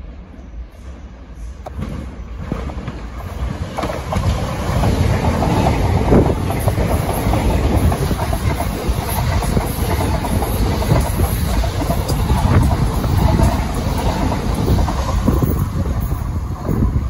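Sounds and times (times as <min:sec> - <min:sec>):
electric train passing: 0:00.0 - 0:17.0
train wheels clicking over track: 0:01.4 - 0:17.0.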